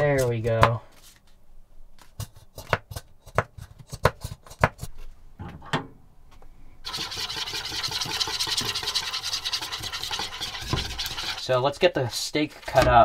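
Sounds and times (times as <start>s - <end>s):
whisk beating liquid in a bowl: 6.9s - 11.5s.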